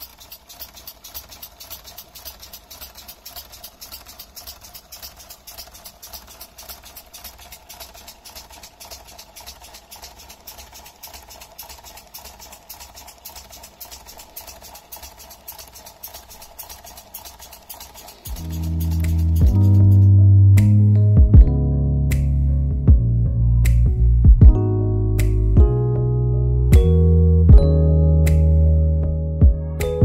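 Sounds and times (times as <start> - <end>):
fast air puffs: 0.0 - 20.7
mechanical hum: 18.1 - 20.8.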